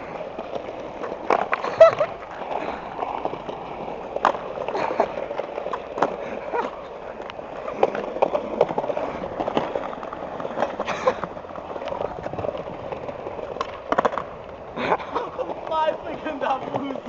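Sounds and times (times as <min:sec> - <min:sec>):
skateboard clacks and knocks: 0:00.0 - 0:17.0
skateboard wheels clattering on tiles: 0:00.0 - 0:17.0.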